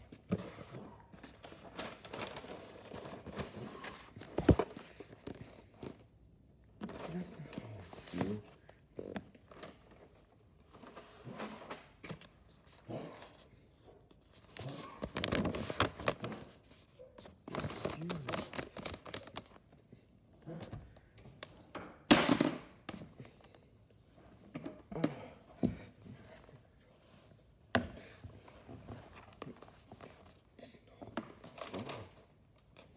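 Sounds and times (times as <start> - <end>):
rustling: 0.0 - 6.0.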